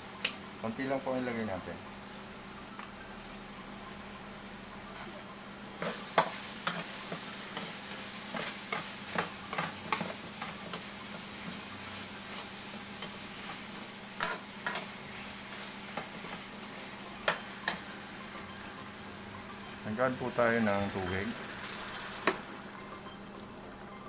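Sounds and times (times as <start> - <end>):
low steady sizzle: 0.0 - 24.0.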